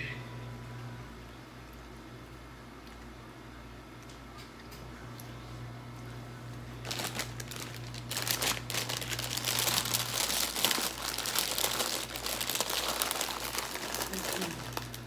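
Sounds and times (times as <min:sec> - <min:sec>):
plastic bag crinkling: 0:06.8 - 0:15.0.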